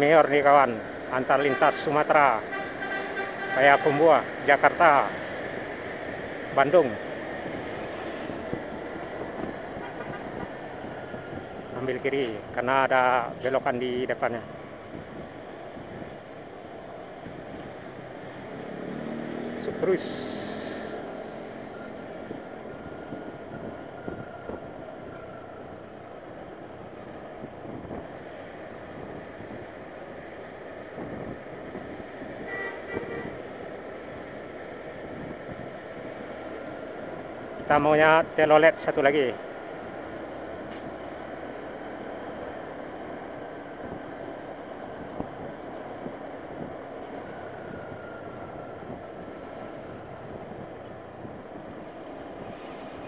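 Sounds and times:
motorcycle road and wind noise: 0.0 - 53.0
horn tone: 1.4 - 4.0, 32.4 - 33.4.

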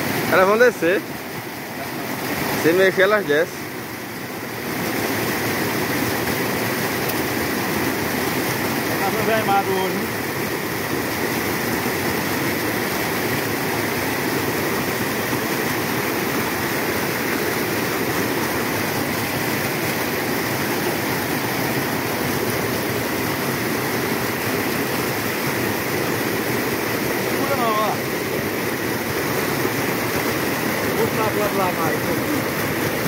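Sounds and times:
white water pouring over rocks: 0.0 - 33.0.

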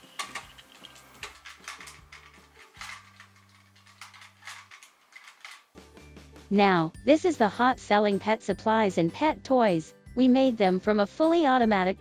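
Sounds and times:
plastic toy clicks: 0.0 - 5.8
quiet background music: 0.0 - 12.0.

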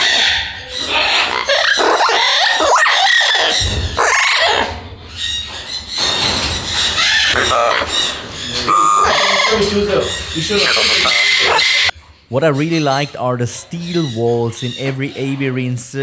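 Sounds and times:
parrot squawking and chattering: 0.0 - 12.0.

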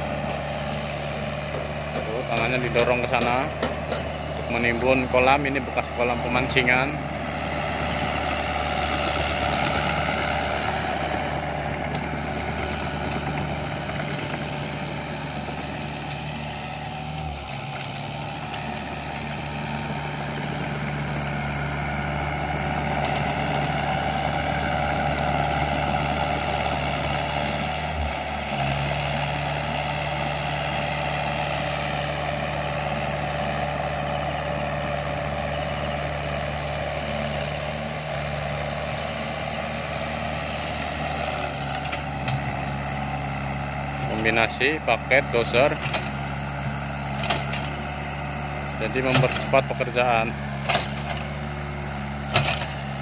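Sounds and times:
diesel engine running under load: 0.0 - 53.0
dozer blade pushing soil: 0.0 - 53.0.

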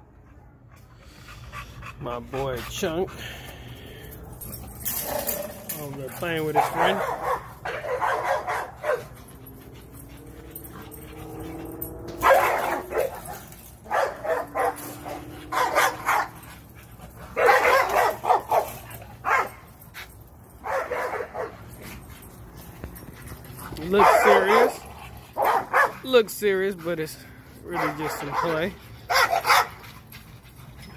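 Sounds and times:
dogs barking and yipping: 0.4 - 30.9
dogs drawn-out vocal sounds: 6.6 - 19.4.

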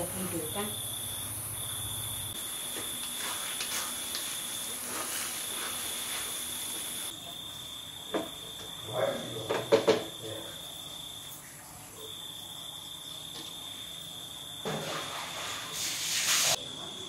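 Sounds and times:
crickets trilling: 0.0 - 17.0
wooden spatula scraping wok: 3.1 - 7.0.

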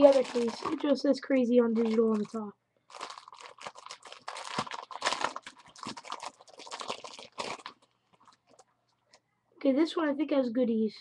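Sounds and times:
plastic packaging crinkling: 0.0 - 8.7.

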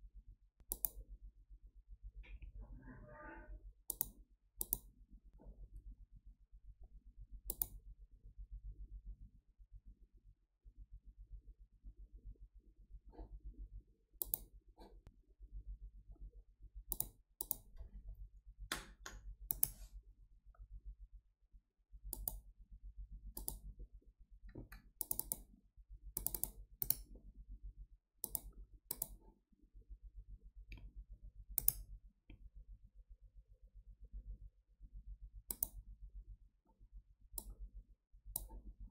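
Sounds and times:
faint low hum: 0.0 - 38.9
computer mouse buttons clicking: 0.6 - 1.0, 3.9 - 4.9, 7.5 - 7.8, 14.2 - 14.9, 16.9 - 17.7, 18.7 - 19.8, 22.1 - 22.4, 23.4 - 23.6, 24.5 - 25.5, 26.2 - 27.1, 28.2 - 29.2, 31.6 - 31.9, 35.5 - 35.8, 38.3 - 38.6.

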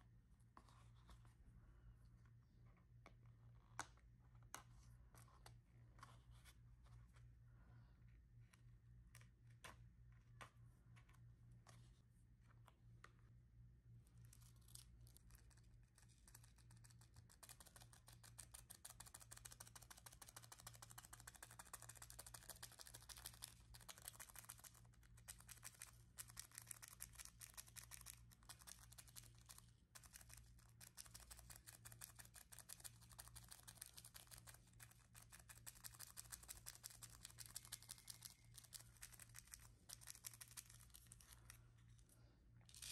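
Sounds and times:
scratching on paper: 14.2 - 41.6.

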